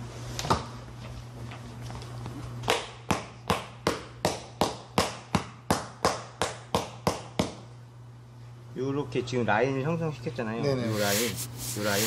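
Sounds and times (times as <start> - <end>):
mallet pounding leather mitt: 2.7 - 7.6.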